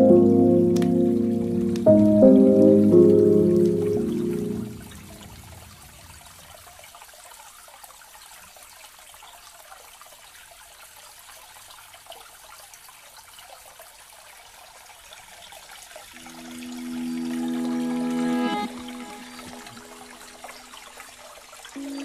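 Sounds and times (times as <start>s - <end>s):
background music: 0.0s - 5.4s, 16.2s - 20.4s, 21.8s - 22.0s
soft water hiss: 0.0s - 22.0s.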